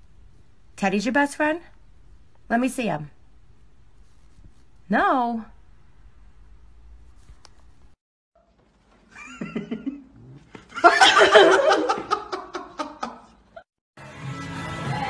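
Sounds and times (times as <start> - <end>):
people laughing: 9.1 - 13.6
music: 14.0 - 15.0.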